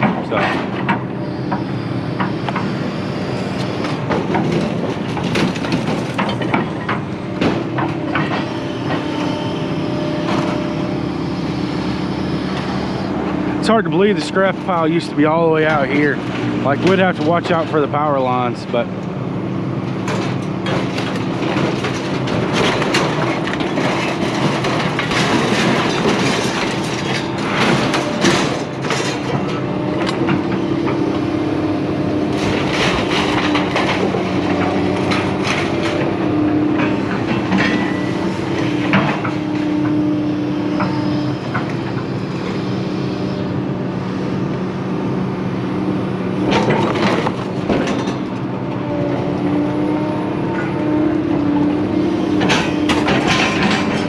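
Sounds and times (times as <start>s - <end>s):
scrap metal clanking and crashing: 0.0s - 1.1s, 3.8s - 9.4s, 13.6s - 18.9s, 19.9s - 42.6s, 46.4s - 54.0s
engine running: 0.0s - 54.0s.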